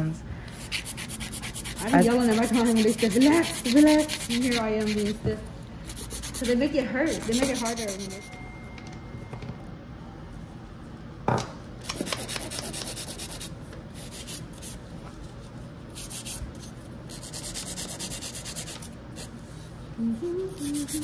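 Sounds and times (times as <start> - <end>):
nail file scraping nails: 0.6 - 5.2, 5.8 - 8.2, 11.8 - 14.8, 16.0 - 18.9, 20.5 - 21.0.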